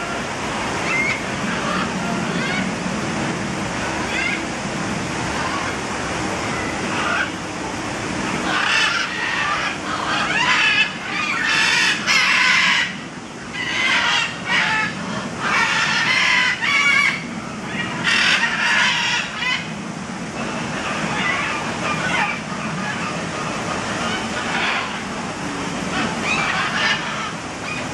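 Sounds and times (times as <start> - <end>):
parrots squawking: 0.8 - 2.7, 6.9 - 7.4, 8.4 - 19.7, 20.4 - 25.0, 25.9 - 27.8.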